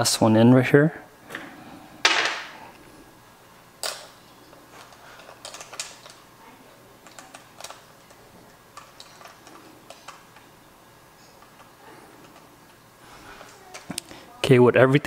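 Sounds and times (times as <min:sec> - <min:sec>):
hex key clicking on screws: 0:04.8 - 0:06.2, 0:07.0 - 0:10.5.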